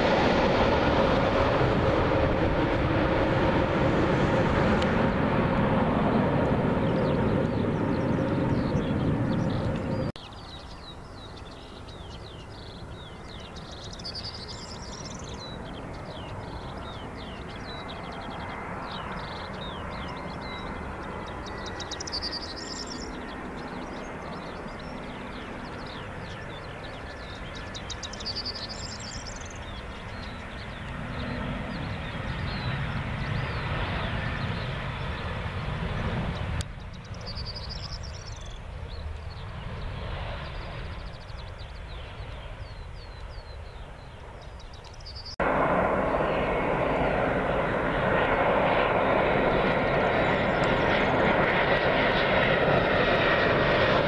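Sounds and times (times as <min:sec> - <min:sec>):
jet engines rumbling and whining: 0:00.0 - 0:54.0
small bird singing: 0:06.0 - 0:45.4.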